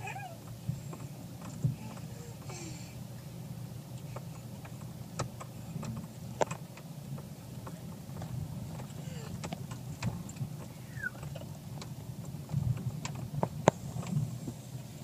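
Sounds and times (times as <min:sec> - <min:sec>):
engine and road rumble: 0:00.0 - 0:15.0.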